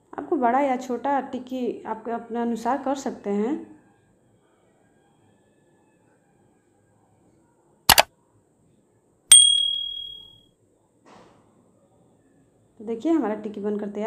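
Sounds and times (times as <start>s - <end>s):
bright bell ding: 9.3s - 10.3s.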